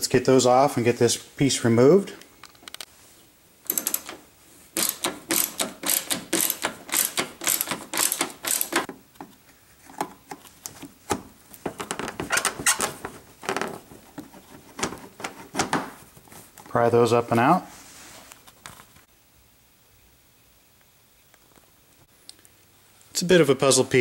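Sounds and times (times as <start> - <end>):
ratchet clicking: 3.7 - 4.2, 4.8 - 8.9.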